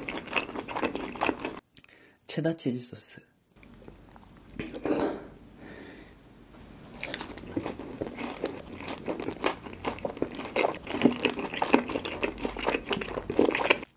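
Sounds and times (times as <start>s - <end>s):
crunching and chewing fried chicken: 0.0s - 1.6s, 6.9s - 13.9s.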